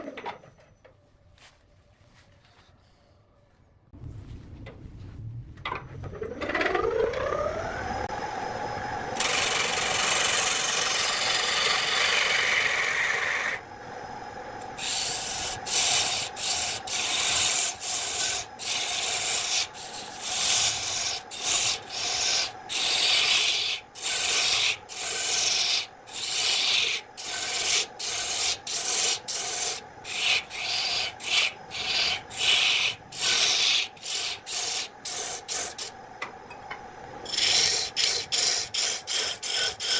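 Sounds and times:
wood lathe motor whining: 6.1s - 13.6s, 14.6s - 35.9s, 37.3s - 39.9s
gouge cutting spinning wood: 9.2s - 13.6s, 14.8s - 35.9s, 37.3s - 39.9s.

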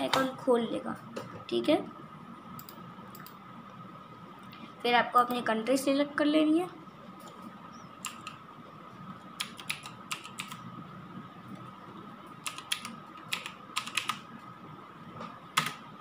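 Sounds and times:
faint high-pitched hum: 0.0s - 16.0s
keyboard keystrokes: 8.0s - 8.4s, 9.4s - 10.6s, 12.4s - 14.2s.

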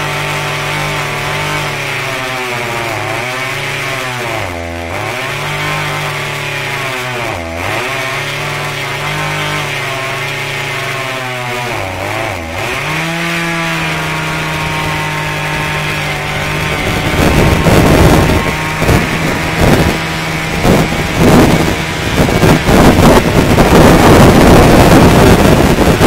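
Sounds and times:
chainsaw cutting tree: 0.0s - 26.0s
loud uneven rushing noise: 12.6s - 26.0s.

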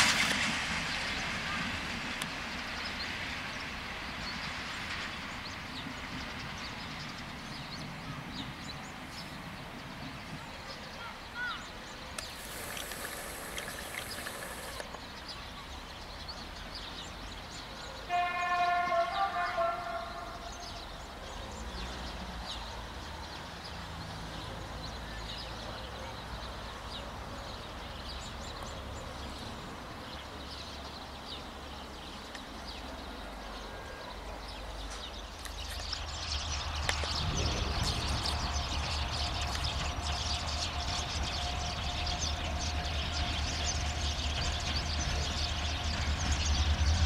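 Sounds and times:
birds chirping: 6.5s - 18.0s
steady locomotive whine: 11.8s - 14.8s, 32.5s - 47.0s.

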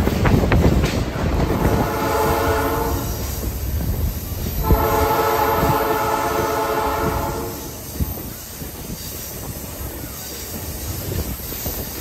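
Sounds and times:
train wheels rumbling on track: 0.0s - 12.0s
locomotive air horn: 1.5s - 3.3s, 4.6s - 7.8s.

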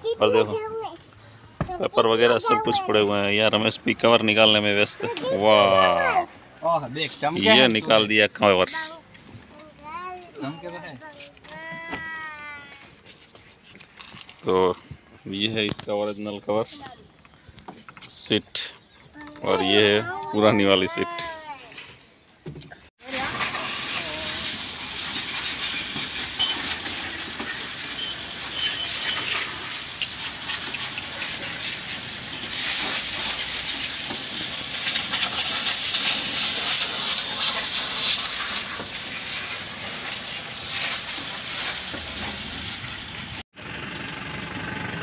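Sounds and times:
high-pressure spray jet hissing: 23.0s - 43.4s.

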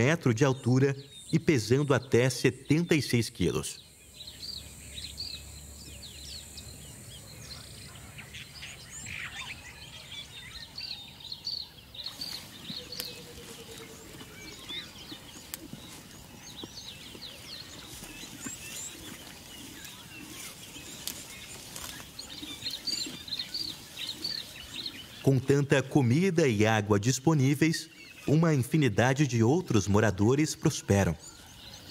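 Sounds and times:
outdoor background noise: 0.0s - 31.9s
small birds chirping: 0.0s - 31.9s.

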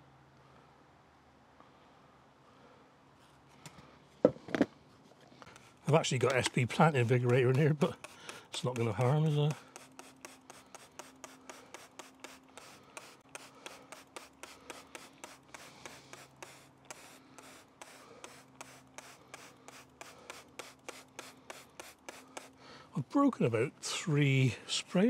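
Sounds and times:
trigger sprayer squirts: 5.5s - 22.6s.

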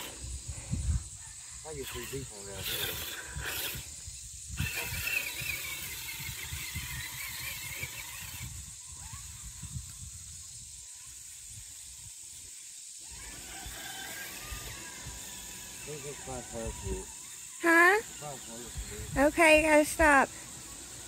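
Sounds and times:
electric motor and gears whining: 0.0s - 21.0s.

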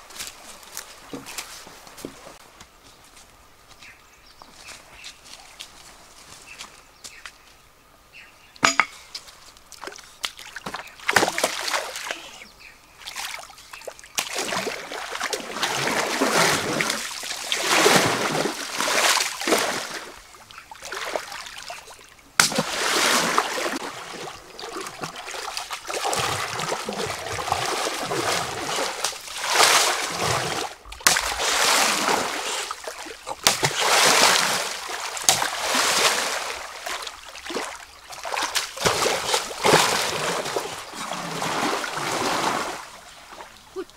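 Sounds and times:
pole beating stream water: 9.8s - 12.2s, 13.0s - 43.9s.

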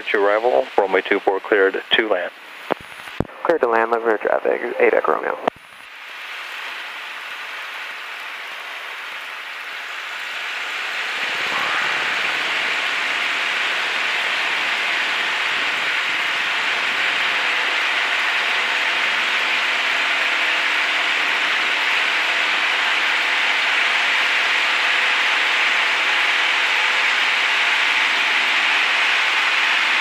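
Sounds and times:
aircraft engine humming faintly: 0.0s - 5.9s.

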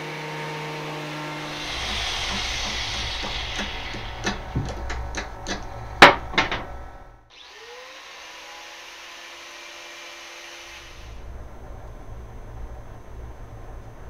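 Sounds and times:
angle grinder whining: 0.7s - 11.2s
loud sharp clack: 1.5s - 6.8s.

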